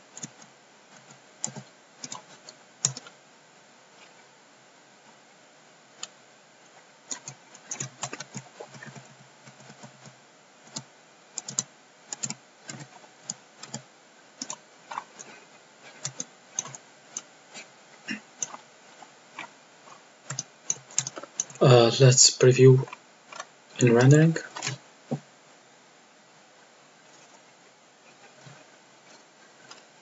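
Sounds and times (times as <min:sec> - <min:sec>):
computer keyboard clicking: 0:00.2 - 0:03.1, 0:07.1 - 0:13.8, 0:14.4 - 0:15.3, 0:15.9 - 0:17.3, 0:20.3 - 0:21.6.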